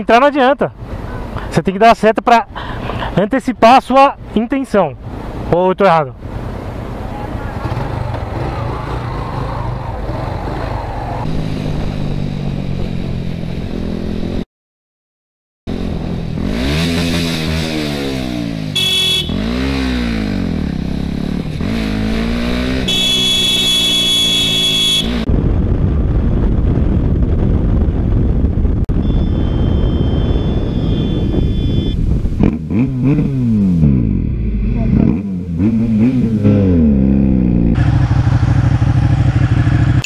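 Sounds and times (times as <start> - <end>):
wind rush: 6.8 - 13.7, 25.2 - 33.6
motorcycle engine revving: 7.4 - 14.4, 15.7 - 25.6, 29.0 - 40.0
horn beeping: 18.8 - 19.7, 22.7 - 25.3, 28.9 - 32.1.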